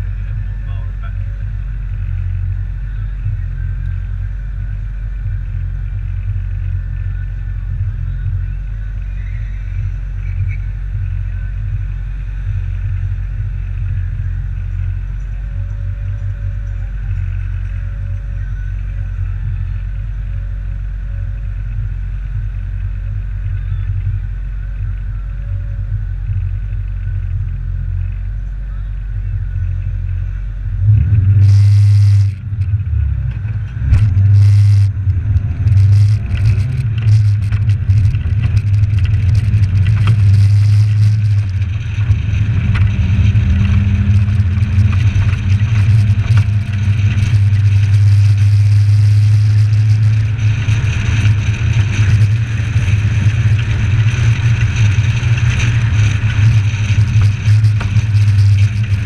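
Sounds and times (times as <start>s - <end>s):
car engine droning: 0.0s - 59.0s
loud rough noise bursts: 30.7s - 59.0s.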